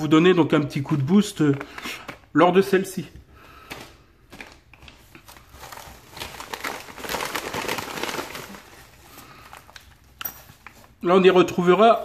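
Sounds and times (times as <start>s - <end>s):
plastic bag crinkling: 3.6s - 11.1s.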